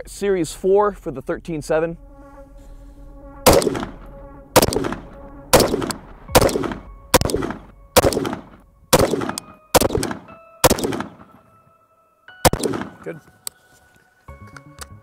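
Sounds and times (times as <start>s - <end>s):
rifle gunshots with echo: 3.5s - 4.0s, 4.6s - 11.4s, 12.4s - 13.1s.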